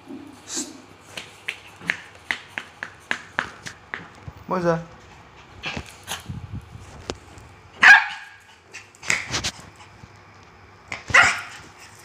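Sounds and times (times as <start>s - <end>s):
small dog barking: 7.8s - 8.4s, 11.1s - 11.6s.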